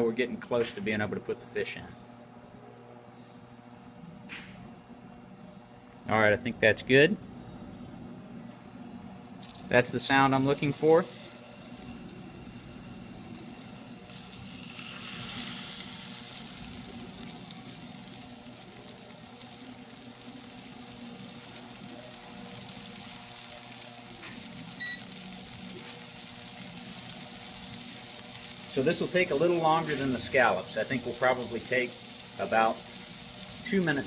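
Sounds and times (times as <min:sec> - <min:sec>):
fish fillets sizzling in hot oil: 0:11.0 - 0:34.0
short beep: 0:24.8 - 0:25.1.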